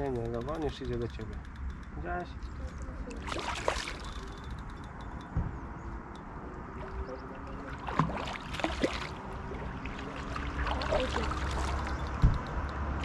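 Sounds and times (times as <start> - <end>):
water splashing: 3.1 - 4.5, 6.7 - 13.0.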